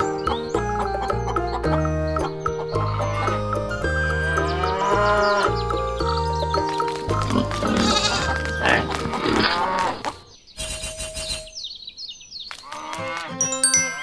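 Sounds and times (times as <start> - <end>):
background music: 0.0 - 10.3, 12.7 - 14.0
bleating animal sound effect: 4.2 - 5.6, 7.4 - 10.2.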